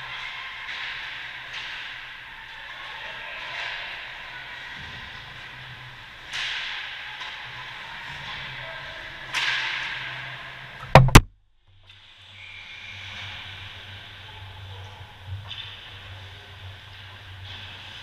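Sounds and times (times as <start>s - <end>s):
loud knocks on camera: 10.8s - 11.3s.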